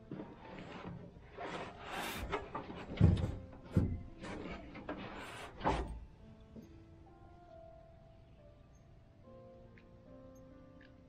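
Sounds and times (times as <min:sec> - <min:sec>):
rustling and knocks in boat: 0:00.0 - 0:06.8
dull thumps against hull: 0:00.1 - 0:06.0.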